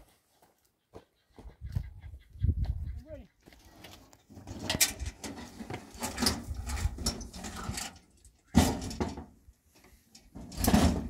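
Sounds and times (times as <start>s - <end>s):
metal door scraping and clanking: 4.4s - 9.3s, 10.4s - 11.0s.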